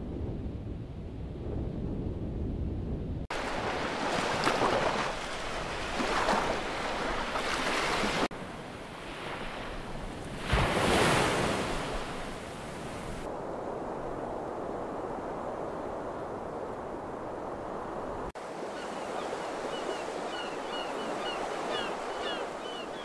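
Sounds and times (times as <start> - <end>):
low wind rumble: 0.0 - 4.1, 8.2 - 18.4
waves breaking on beach: 3.3 - 17.1, 17.9 - 23.0.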